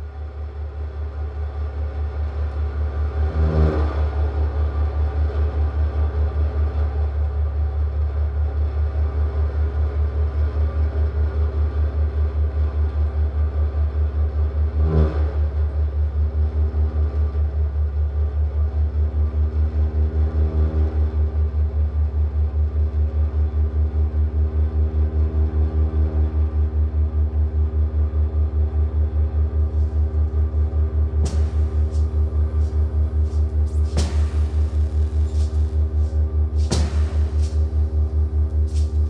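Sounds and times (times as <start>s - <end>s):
throbbing electronic drone: 27.5s - 39.0s
bright electronic swells: 31.3s - 39.0s.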